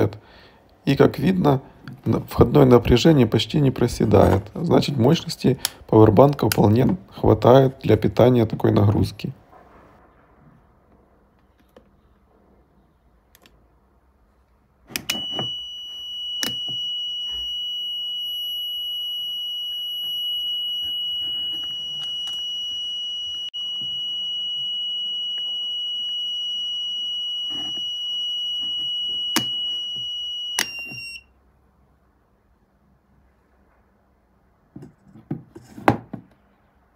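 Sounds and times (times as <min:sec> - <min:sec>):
high-pitched alarm beep: 0:15.1 - 0:31.3.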